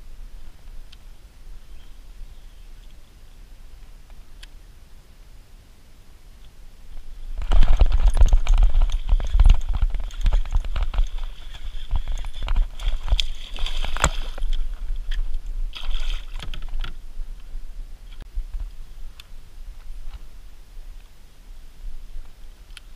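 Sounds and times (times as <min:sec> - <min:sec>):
water splashing and sloshing: 0:07.2 - 0:17.5
sharp clicks and knocks: 0:07.4 - 0:15.4.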